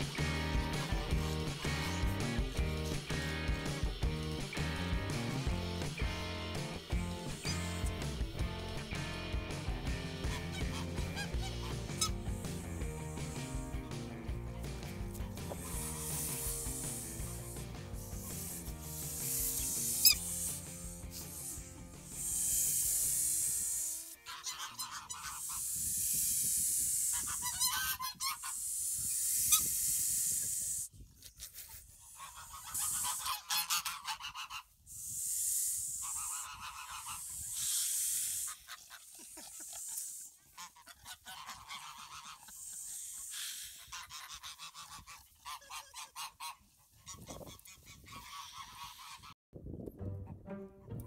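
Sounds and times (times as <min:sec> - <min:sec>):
geese honking and cackling: 0:06.0 - 0:13.8, 0:15.2 - 0:20.6, 0:24.1 - 0:25.8, 0:27.1 - 0:28.8, 0:32.0 - 0:35.1, 0:35.8 - 0:49.4.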